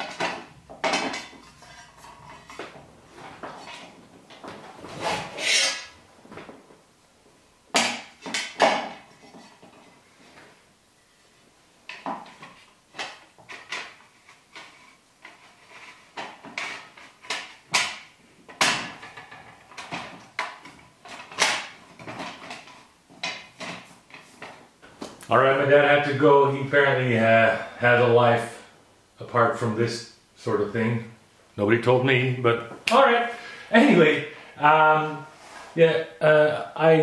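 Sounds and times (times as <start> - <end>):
panels and tubes clacking on wood: 0.0 - 6.8, 7.7 - 10.5, 11.9 - 25.3.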